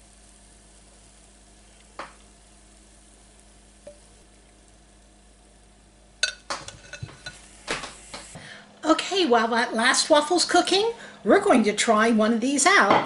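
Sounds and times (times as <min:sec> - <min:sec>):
waffle batter sizzling: 0:00.0 - 0:12.2
spatula tapping glass bowl: 0:06.2 - 0:07.4.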